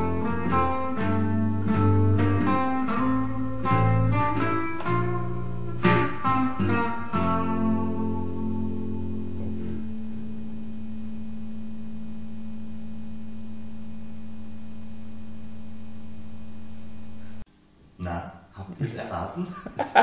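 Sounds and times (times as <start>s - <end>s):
electric guitar chord ringing: 0.0s - 15.9s
electric bass ringing: 0.0s - 17.4s.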